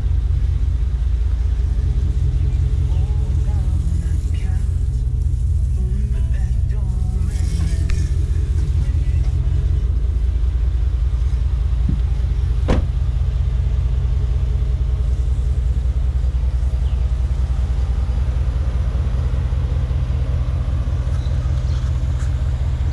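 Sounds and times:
truck engine idling: 0.0s - 22.9s.

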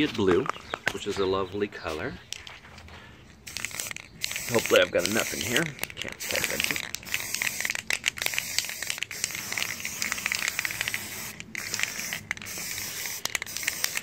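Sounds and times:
aerosol spray can hissing: 3.5s - 5.6s, 6.2s - 14.0s.

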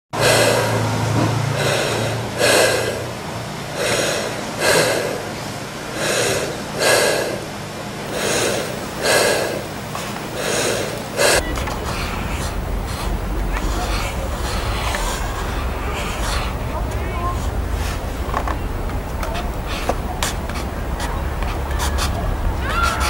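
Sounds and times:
person breathing heavily: 0.2s - 23.0s.

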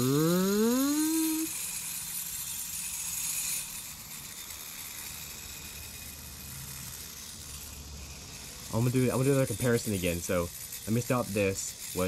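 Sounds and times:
compressed air hiss: 0.0s - 1.5s
gyroscope rotor humming: 0.0s - 12.0s.

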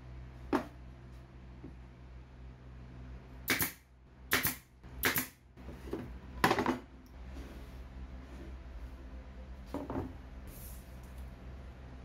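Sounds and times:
brad nailer firing: 3.4s - 5.4s.

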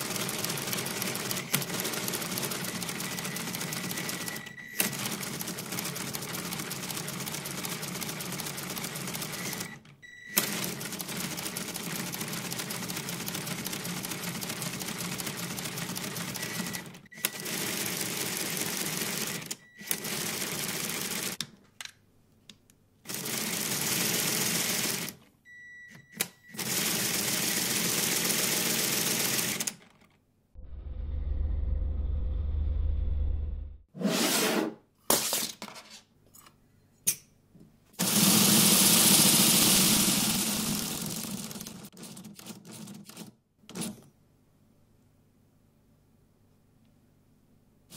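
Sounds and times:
low rumbling: 30.6s - 33.8s.

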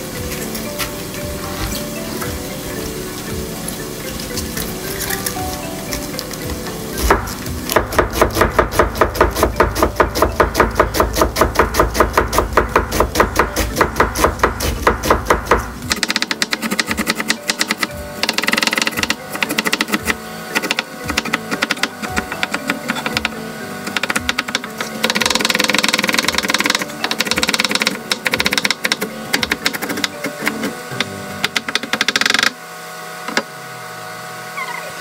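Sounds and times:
knife chopping cabbage on board: 7.0s - 17.8s.

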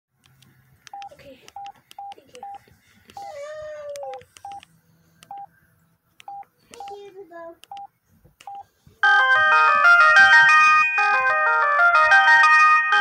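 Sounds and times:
keypad beeps: 0.9s - 3.3s, 4.0s - 5.5s, 6.2s - 7.0s, 7.6s - 8.7s.

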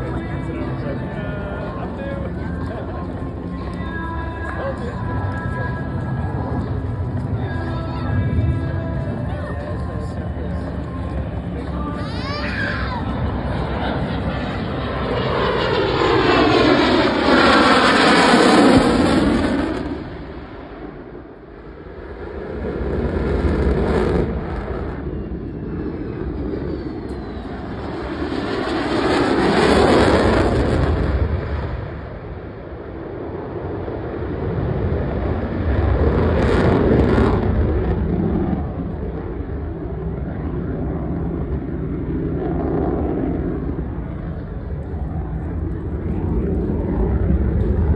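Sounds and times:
fighter jet flying past: 9.9s - 47.9s.

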